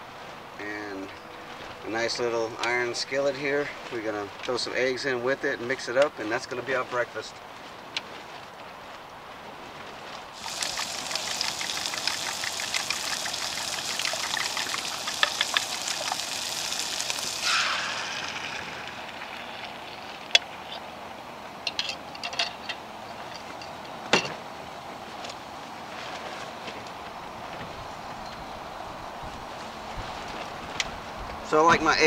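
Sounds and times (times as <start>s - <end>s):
eggs poured in: 10.4s - 20.2s
food sizzling in skillet: 10.4s - 20.3s.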